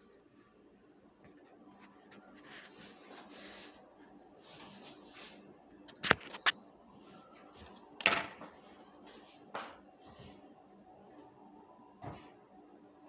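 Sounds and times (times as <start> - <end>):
knocks of kitchen items set down: 8.0 - 8.5.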